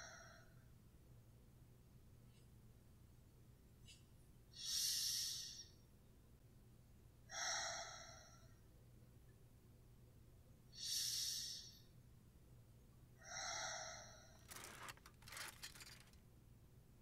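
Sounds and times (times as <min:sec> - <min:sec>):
woman breathing heavily: 0:00.0 - 0:00.6, 0:07.3 - 0:08.6, 0:10.8 - 0:11.9, 0:13.2 - 0:15.0
clothes and hangers clattering: 0:14.5 - 0:16.2.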